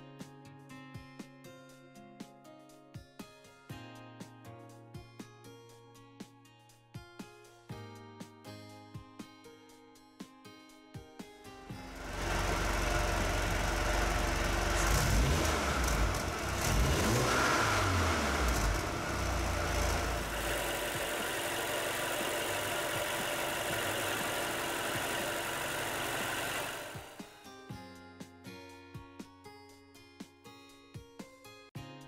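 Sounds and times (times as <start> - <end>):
car engine revving and idling: 11.8 - 27.2.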